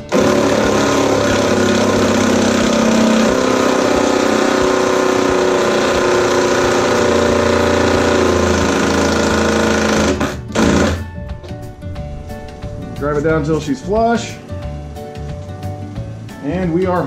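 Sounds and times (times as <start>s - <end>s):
impact driver running: 0.0s - 11.1s.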